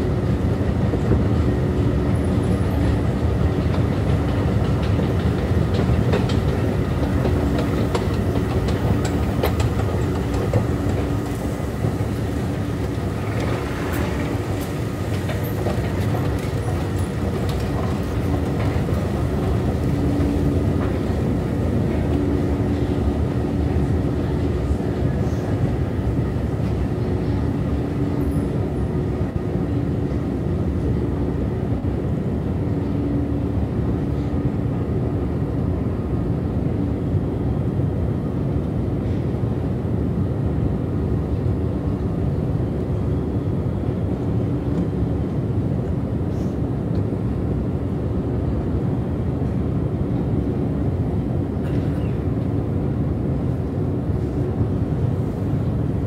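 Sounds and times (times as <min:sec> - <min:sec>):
escalator mechanical rumble: 0:00.0 - 0:34.9.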